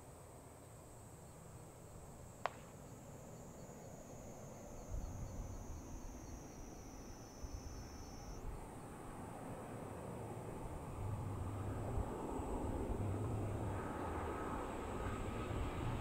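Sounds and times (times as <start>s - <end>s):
high-pitched whine: 3.6s - 8.6s.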